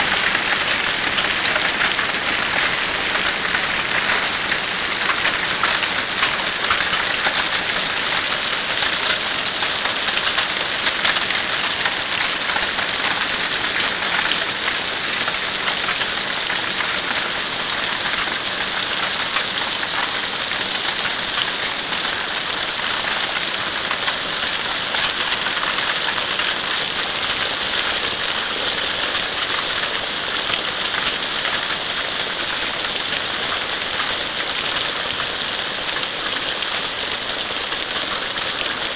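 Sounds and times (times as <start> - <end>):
hailstones striking grass and stone: 0.0 - 20.1.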